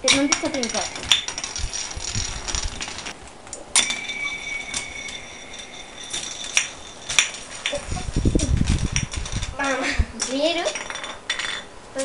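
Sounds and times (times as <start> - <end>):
spinning top launch clink: 0.0 - 3.1, 3.7 - 9.5
spinning top whirring: 0.0 - 3.2, 3.8 - 9.6.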